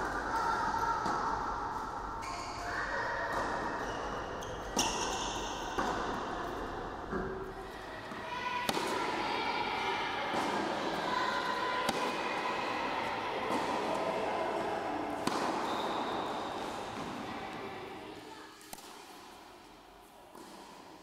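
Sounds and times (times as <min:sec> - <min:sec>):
racket hitting tennis ball: 0:04.8 - 0:06.3, 0:08.1 - 0:09.3, 0:10.2 - 0:11.0, 0:11.8 - 0:12.4, 0:13.4 - 0:14.0, 0:15.1 - 0:17.6
tennis ball bouncing: 0:08.6 - 0:09.2, 0:15.2 - 0:17.2.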